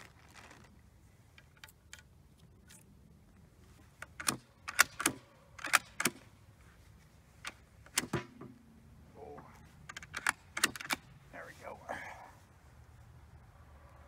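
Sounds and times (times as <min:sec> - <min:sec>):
rifle bolt action clicking: 0:04.0 - 0:06.2, 0:09.9 - 0:11.1.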